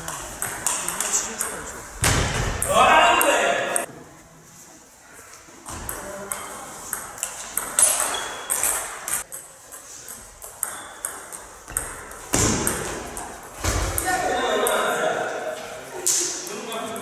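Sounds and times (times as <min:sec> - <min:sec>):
table tennis ball hits: 0:00.0 - 0:03.9, 0:05.7 - 0:14.9.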